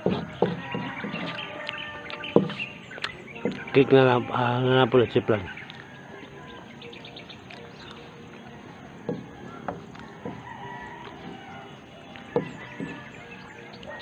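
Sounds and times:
rooster crowing: 0:00.0 - 0:02.7, 0:09.1 - 0:14.0
small birds chirping: 0:00.0 - 0:14.0.

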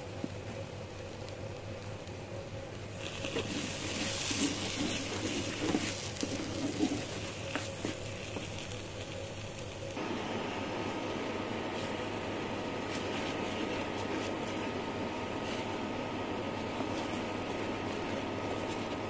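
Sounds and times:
low hum: 0:00.0 - 0:19.0
fish mash sizzling in a pan: 0:01.0 - 0:10.0
wooden spatula scraping pan: 0:03.1 - 0:08.5.

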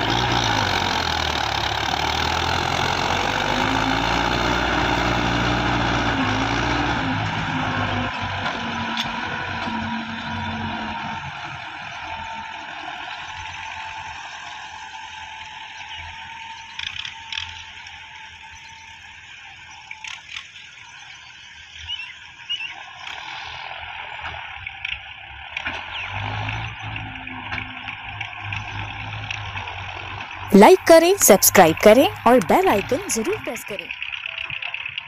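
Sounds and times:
diesel tractor engine: 0:00.0 - 0:16.5, 0:26.2 - 0:33.9.

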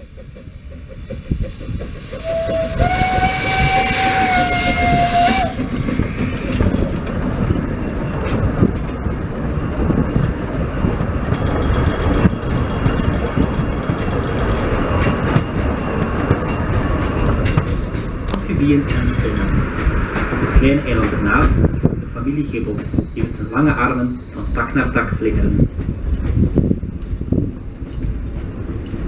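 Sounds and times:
steam hissing: 0:00.0 - 0:07.0
train wheels rumbling on rails: 0:00.0 - 0:29.0
steam locomotive whistle: 0:02.2 - 0:05.6.

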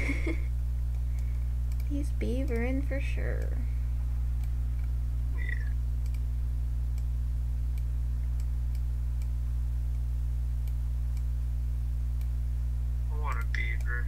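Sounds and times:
steady low hum: 0:00.0 - 0:14.0
computer mouse clicks: 0:00.9 - 0:01.9, 0:04.4 - 0:06.2.

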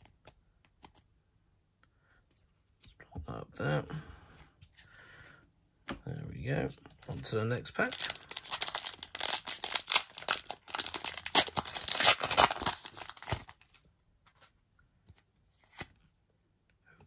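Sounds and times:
foil wrapper tearing and crinkling: 0:07.8 - 0:13.6.

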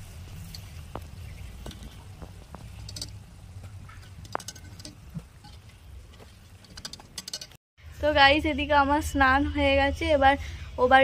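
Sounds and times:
faint sizzle of frying in oil: 0:00.0 - 0:06.6.

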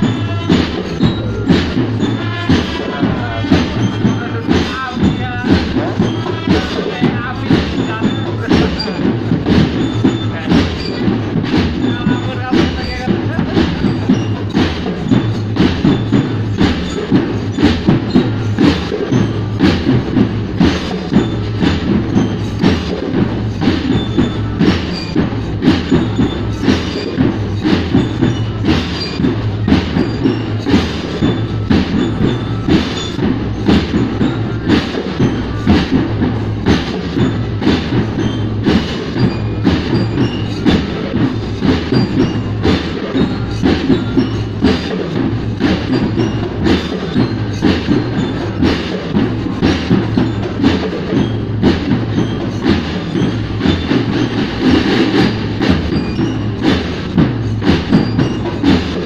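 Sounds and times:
marching drum band: 0:00.0 - 0:59.0.

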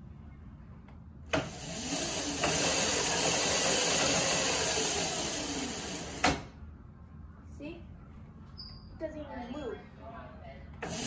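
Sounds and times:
electric motor and chain whine: 0:01.3 - 0:06.5, 0:10.8 - 0:11.0.

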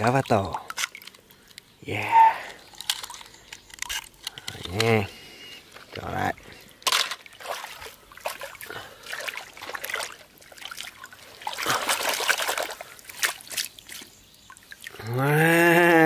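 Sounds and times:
man's drawn-out exclamation: 0:01.8 - 0:02.6, 0:15.0 - 0:16.0
toys splashing in muddy water: 0:06.8 - 0:15.0.

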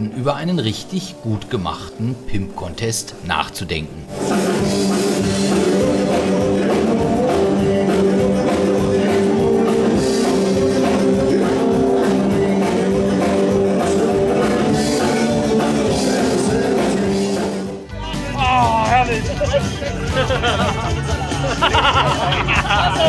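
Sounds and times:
drums: 0:04.1 - 0:23.0.

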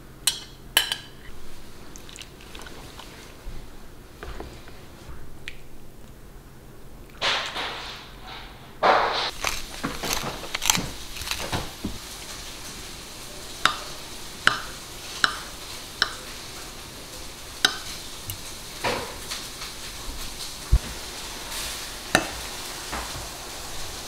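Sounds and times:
pepper grinder crunching: 0:09.3 - 0:12.4.

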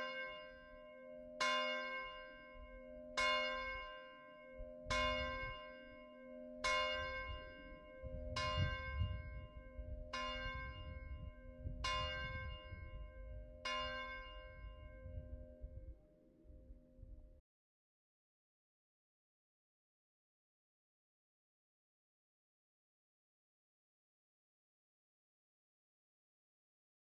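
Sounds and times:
low rumble: 0:08.1 - 0:16.0.

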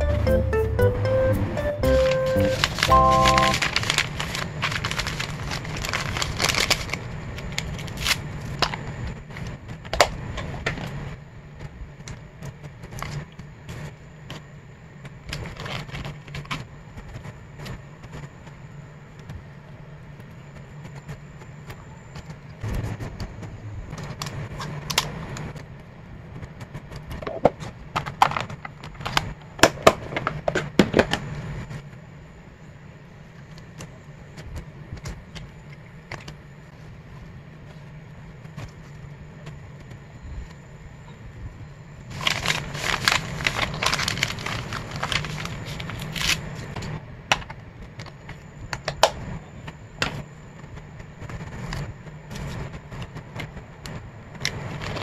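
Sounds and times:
steady low hum: 0:00.0 - 0:55.0
plastic film crinkling: 0:01.9 - 0:08.8, 0:42.1 - 0:46.8, 0:54.6 - 0:55.0.

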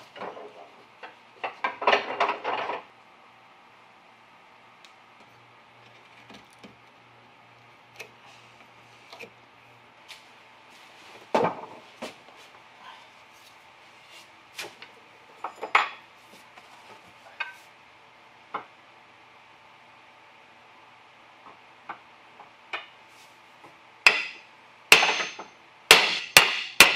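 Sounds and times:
hand tools and wood clattering: 0:24.1 - 0:26.9.

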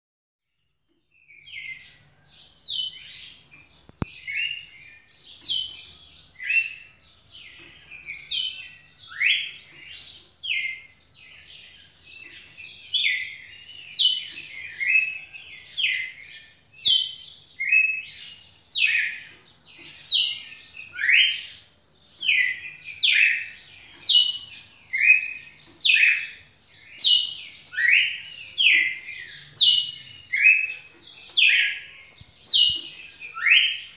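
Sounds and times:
bird singing whistled phrases: 0:07.6 - 0:09.8, 0:12.1 - 0:18.2, 0:20.1 - 0:21.6, 0:22.2 - 0:33.9.

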